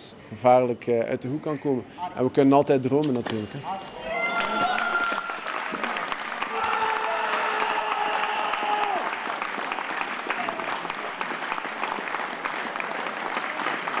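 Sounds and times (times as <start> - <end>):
long held cheer: 4.0 - 12.2
crowd applauding: 4.3 - 14.0.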